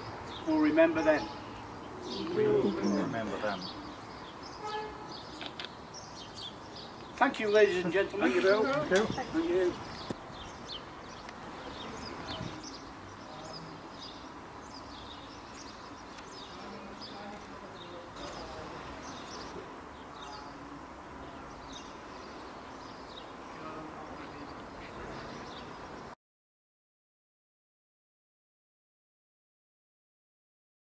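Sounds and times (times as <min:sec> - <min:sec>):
outdoor background hiss: 0:00.0 - 0:26.2
small birds chirping: 0:00.0 - 0:26.2.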